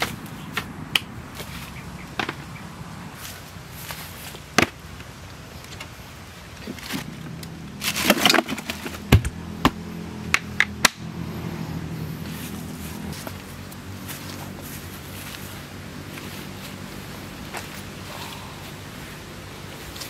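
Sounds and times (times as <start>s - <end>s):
rustling clatter of camp gear: 3.2s - 9.4s.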